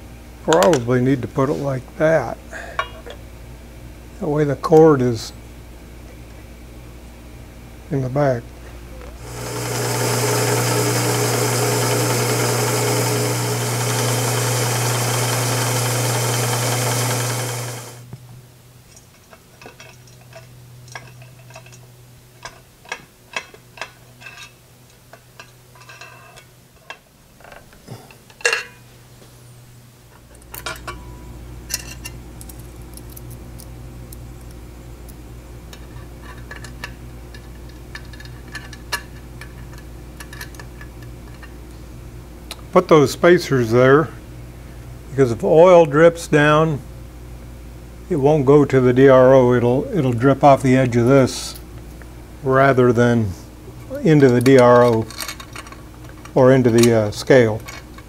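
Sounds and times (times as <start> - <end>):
low steady hum: 0.0 - 58.0
drill press drilling metal: 9.2 - 18.0
metal parts clinking: 18.9 - 27.7, 35.7 - 41.5, 54.2 - 58.0.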